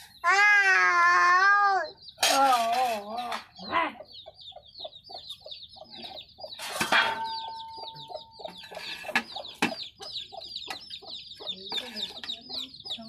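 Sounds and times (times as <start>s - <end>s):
chickens clucking: 1.1s - 13.0s
rapid high chirping: 3.4s - 13.0s
metal plate clanking: 6.6s - 9.8s.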